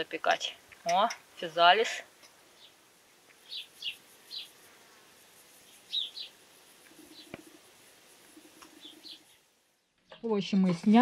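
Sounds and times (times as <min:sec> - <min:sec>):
insect buzzing: 0:00.6 - 0:09.9
high bird chirps: 0:02.6 - 0:04.6, 0:05.6 - 0:07.6, 0:08.2 - 0:10.2.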